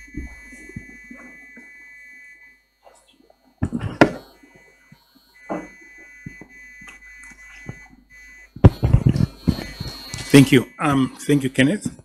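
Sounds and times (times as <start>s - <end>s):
faint high-pitched electronic tone: 0.0s - 12.0s
microphone handling bumps: 3.6s - 4.3s, 5.4s - 10.3s.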